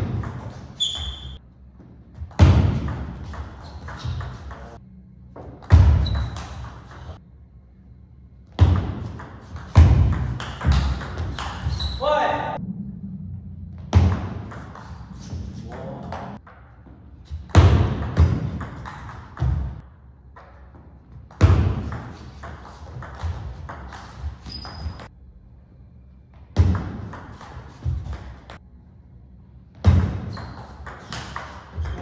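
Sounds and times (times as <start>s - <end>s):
ball bouncing on table: 8.6s - 11.8s.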